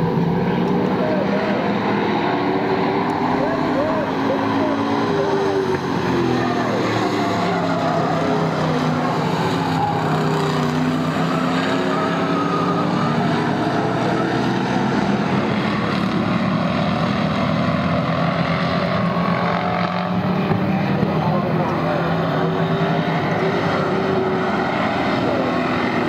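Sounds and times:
race car engines passing: 0.0s - 26.0s.

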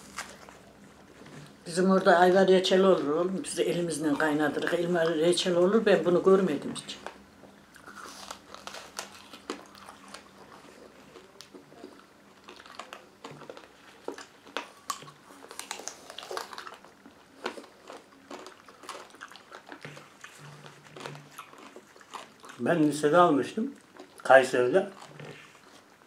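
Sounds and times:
people chewing candy apples: 0.0s - 26.0s.

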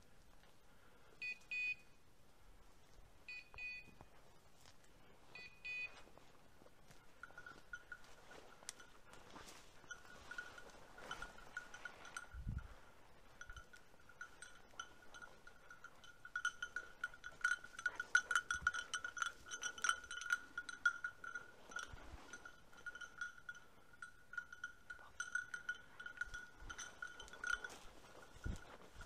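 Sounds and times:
dog collar bell jingling: 6.9s - 29.0s.

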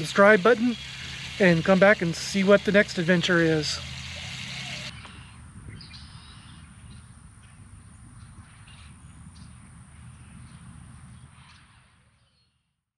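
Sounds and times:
thin steady high tone: 0.0s - 5.0s
bird chirps: 0.0s - 7.1s.

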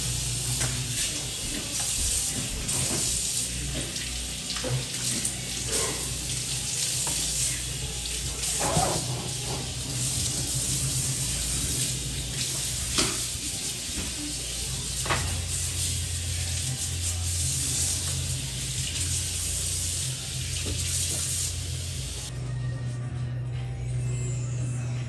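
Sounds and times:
faucet running into a sink: 0.6s - 22.0s.

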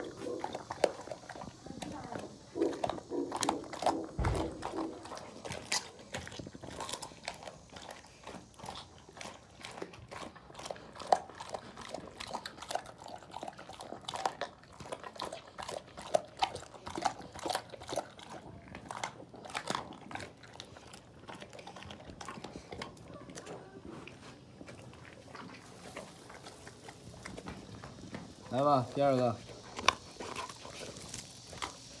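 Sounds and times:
dog crunching and chewing: 0.0s - 32.0s
bones cracking: 2.6s - 8.9s.

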